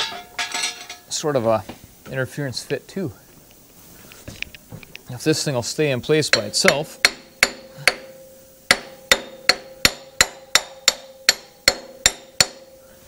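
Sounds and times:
hammer tapping metal: 0:06.2 - 0:12.8.

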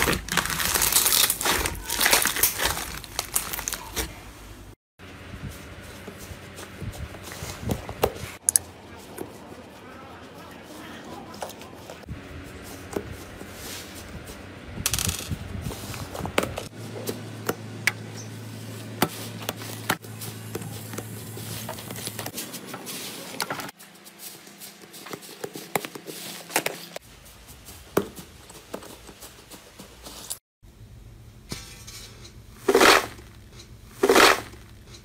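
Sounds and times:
slime crackling and popping: 0:00.0 - 0:04.0.

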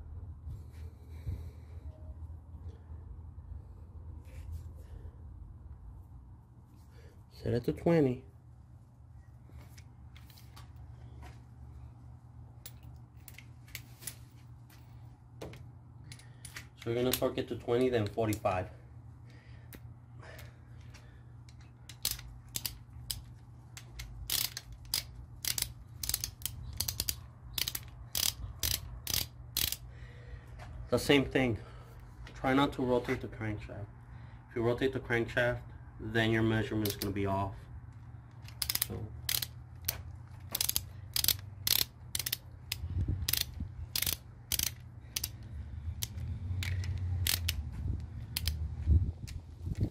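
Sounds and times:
torque wrench ratchet clicking: 0:21.9 - 0:29.9, 0:36.8 - 0:37.1, 0:38.4 - 0:48.6.

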